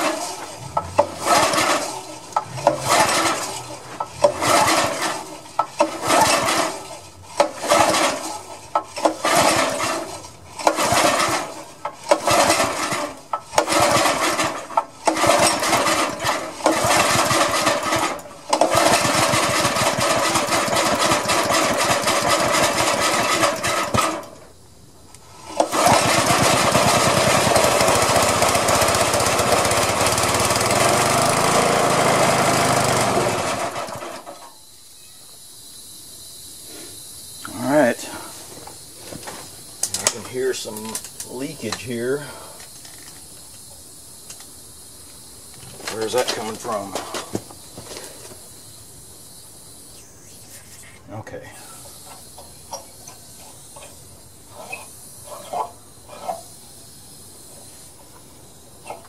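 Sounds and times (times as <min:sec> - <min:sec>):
small engine running rough: 0:00.0 - 0:24.4, 0:25.4 - 0:34.5.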